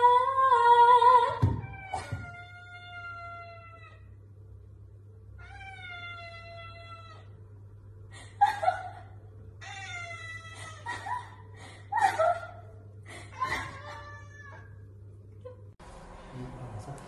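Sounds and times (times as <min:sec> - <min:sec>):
cat meowing: 0:01.6 - 0:04.1, 0:05.4 - 0:07.3, 0:13.7 - 0:14.8
rough cat cries: 0:01.6 - 0:04.1, 0:05.4 - 0:07.4, 0:09.6 - 0:10.9, 0:13.3 - 0:14.8.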